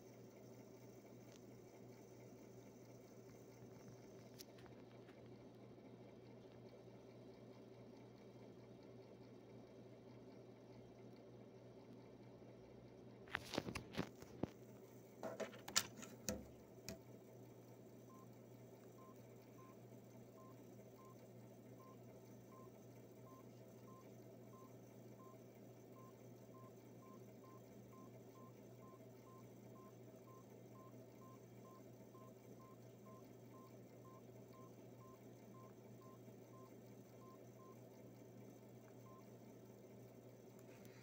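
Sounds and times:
steady low hum: 0:00.0 - 0:41.0
phone keypad beeps: 0:15.3 - 0:16.5.

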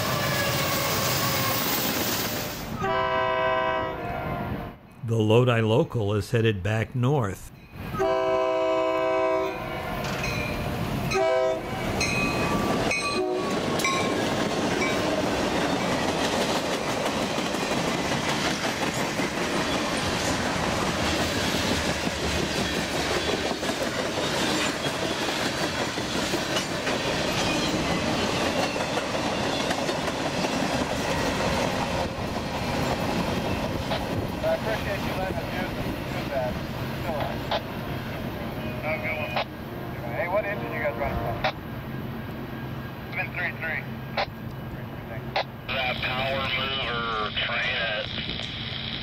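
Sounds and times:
freight train rolling past: 0:00.0 - 0:05.1, 0:07.5 - 0:49.0
locomotive horn blasts: 0:02.8 - 0:04.7, 0:07.9 - 0:09.8, 0:11.1 - 0:11.8, 0:13.0 - 0:13.6, 0:39.8 - 0:41.5.

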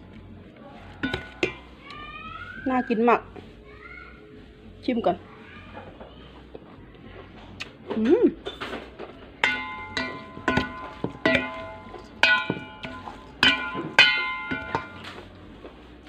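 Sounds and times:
metal spoon clanking on a bowl: 0:01.0 - 0:01.6, 0:09.4 - 0:15.3.

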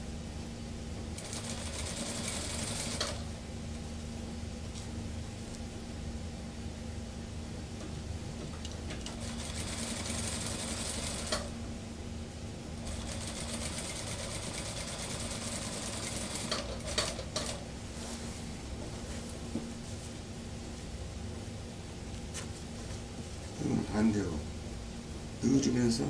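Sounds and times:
sewing machine stitching: 0:01.2 - 0:03.2, 0:09.2 - 0:11.4, 0:12.9 - 0:17.6
sewing machine clicks: 0:12.9 - 0:17.6.

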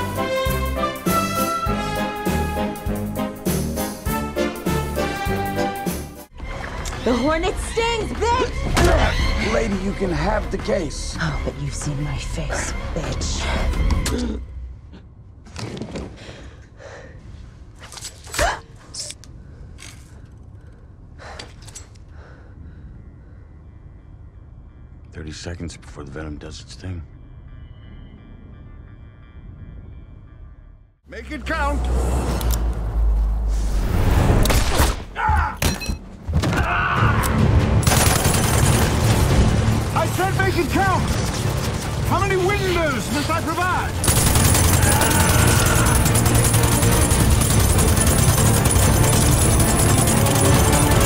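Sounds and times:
rapid automatic gunfire: 0:37.8 - 0:39.3, 0:43.9 - 0:51.0.

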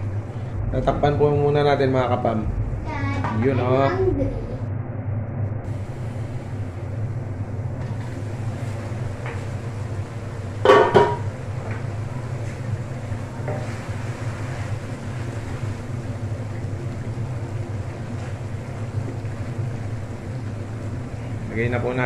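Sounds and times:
gas stove burner rumble: 0:00.0 - 0:22.0
cookware clattering: 0:10.7 - 0:11.3.

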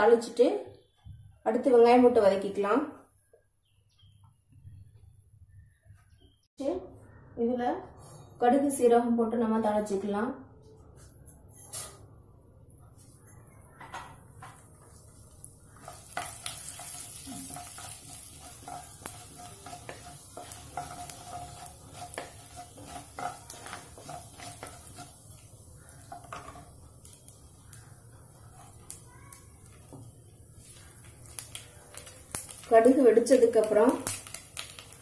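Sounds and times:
seeds crackling and popping: 0:12.8 - 0:35.0
seeds sizzling in hot oil: 0:13.0 - 0:35.0
wooden spatula scraping pan: 0:15.7 - 0:25.4.

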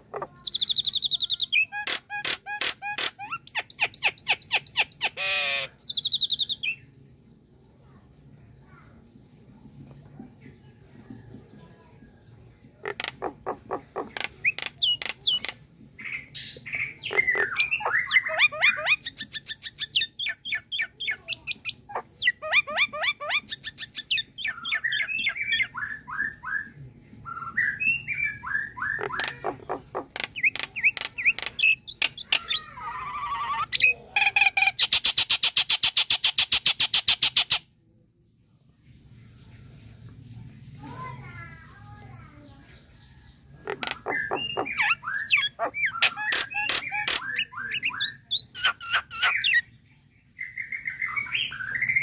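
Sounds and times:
bird singing with whistles and clicks: 0:43.8 - 0:49.6.

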